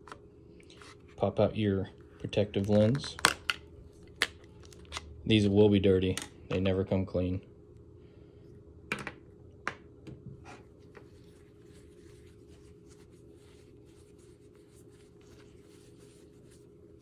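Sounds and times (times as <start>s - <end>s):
cloth rubbing on lens: 10.6s - 17.0s.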